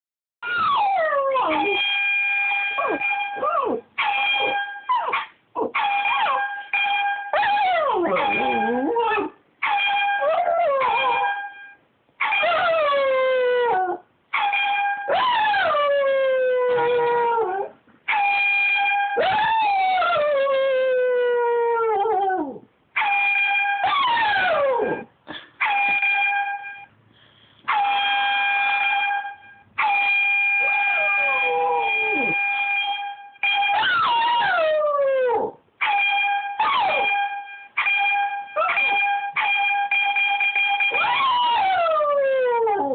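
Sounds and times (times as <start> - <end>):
dog howling: 0.4 - 1.8, 7.4 - 9.3, 30.6 - 32.4, 41.0 - 42.9.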